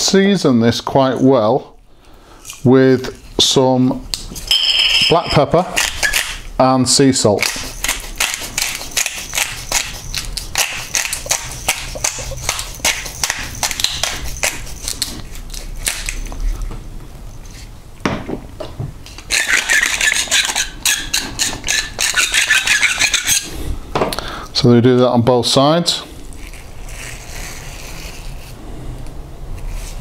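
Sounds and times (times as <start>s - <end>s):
salt grinder crunching: 7.4s - 16.4s.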